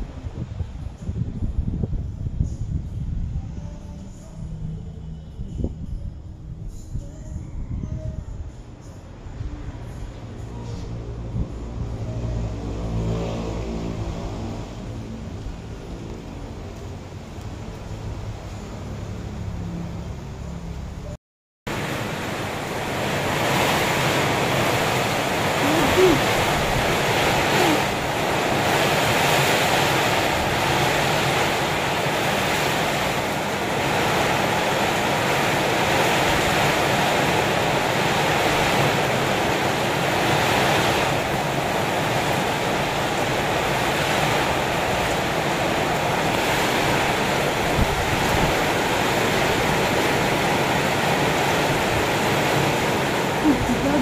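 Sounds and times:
heavy rain pouring on roofs: 0:13.1 - 0:19.1, 0:21.7 - 0:54.0.

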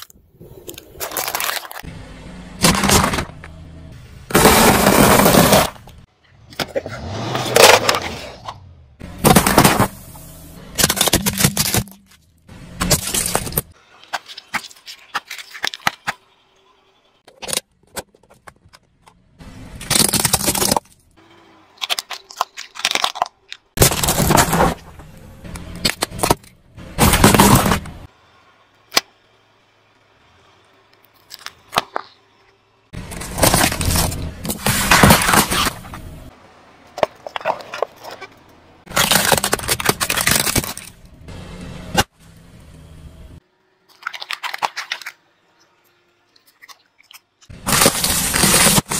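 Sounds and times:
tyre crushing cans: 0:02.6 - 0:03.4, 0:04.3 - 0:05.9, 0:09.2 - 0:10.0, 0:10.8 - 0:12.2, 0:21.8 - 0:25.1, 0:25.8 - 0:28.0, 0:33.0 - 0:36.1, 0:38.9 - 0:41.0.

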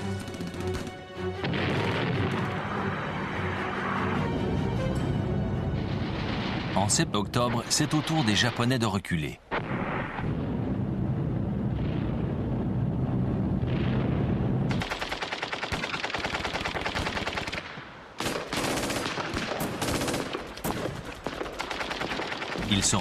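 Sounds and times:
low rumble: 0:09.6 - 0:14.8
machine-gun fire: 0:14.7 - 0:23.0.

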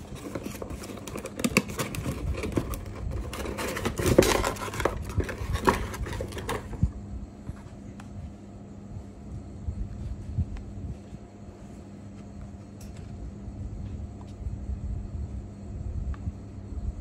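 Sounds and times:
paper and packaging rustling: 0:00.0 - 0:06.8.

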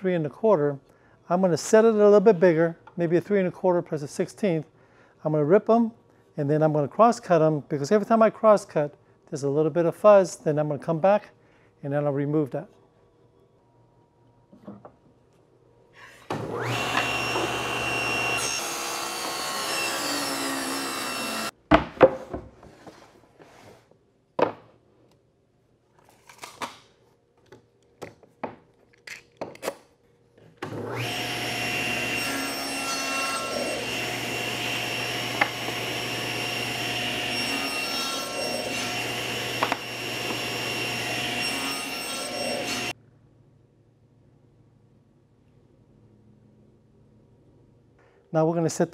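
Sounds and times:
table saw cutting wood: 0:16.3 - 0:21.5, 0:30.6 - 0:43.0.

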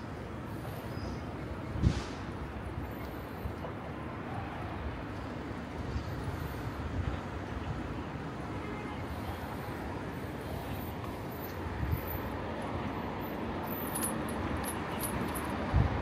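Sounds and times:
traffic rush: 0:00.0 - 0:16.0.

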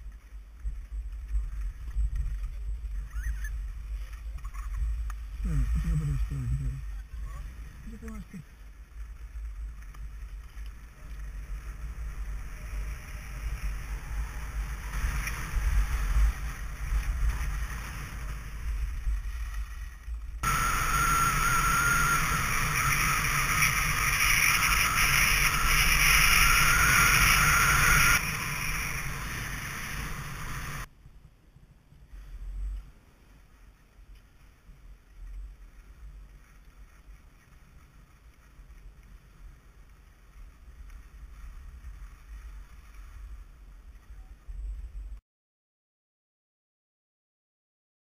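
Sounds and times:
skis hissing over snow: 0:07.4 - 0:30.9, 0:32.1 - 0:44.2.

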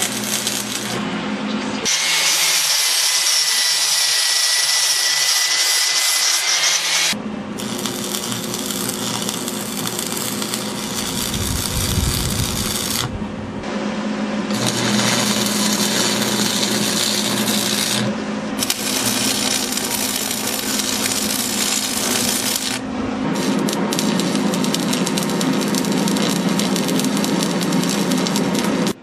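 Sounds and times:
welder arc crackling and sizzling: 0:00.0 - 0:01.0, 0:01.8 - 0:13.2, 0:14.5 - 0:29.0
steady low hum: 0:07.1 - 0:29.0.

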